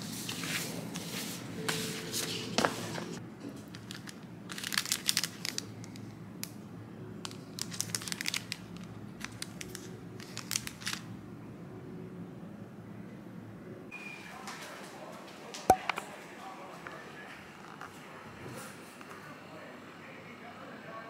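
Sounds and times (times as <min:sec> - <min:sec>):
plastic packaging crinkling: 0:03.7 - 0:06.0, 0:07.3 - 0:11.1.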